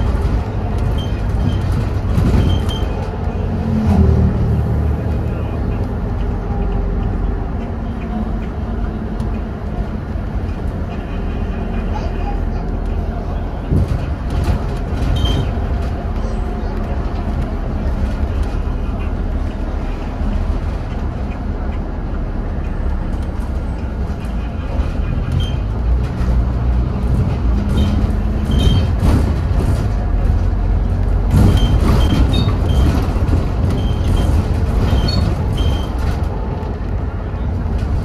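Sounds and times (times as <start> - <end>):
body rattles and squeaks: 0.0 - 3.4, 13.7 - 18.6, 23.6 - 36.7
bus diesel engine: 0.0 - 38.0
road rumble: 0.0 - 38.0.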